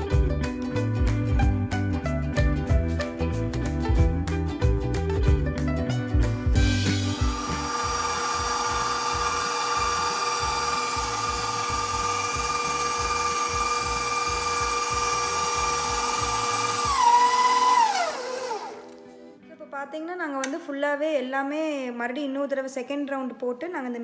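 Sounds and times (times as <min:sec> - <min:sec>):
meat grinder rumbling: 0:06.6 - 0:18.9
mixer motor whining: 0:06.6 - 0:19.0.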